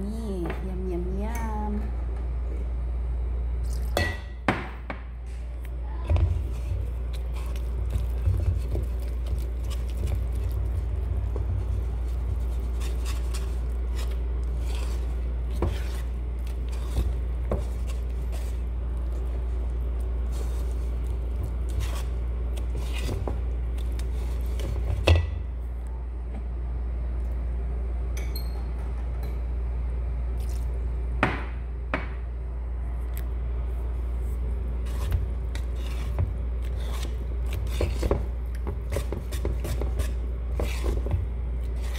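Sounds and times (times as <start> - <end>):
whisk stirring batter: 6.3 - 25.1, 34.8 - 41.9.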